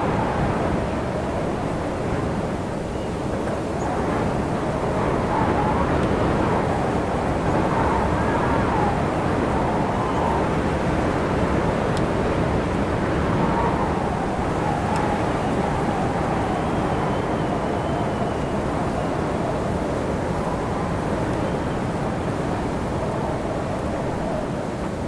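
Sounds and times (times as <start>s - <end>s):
wind blowing: 0.0s - 25.0s
faint wavering whistle: 3.8s - 10.6s, 13.1s - 24.4s.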